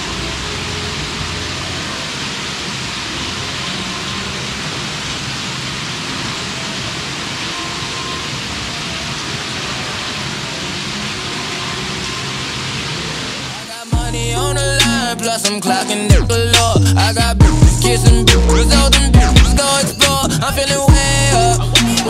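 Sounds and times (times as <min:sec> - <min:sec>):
fountain water splashing: 0:00.0 - 0:17.3.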